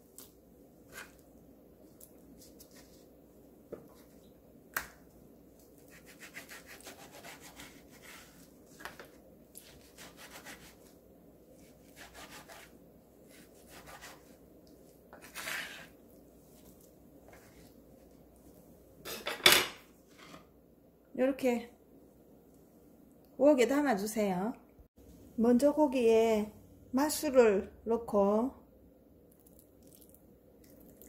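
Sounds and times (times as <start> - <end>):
knife slicing meat: 5.8 - 8.8, 9.5 - 10.9, 11.6 - 14.4, 15.1 - 16.0.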